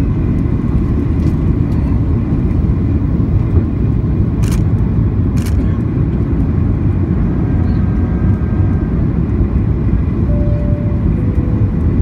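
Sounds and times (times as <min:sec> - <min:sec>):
airplane cabin rumble: 0:00.0 - 0:12.0
faint whine: 0:07.2 - 0:12.0.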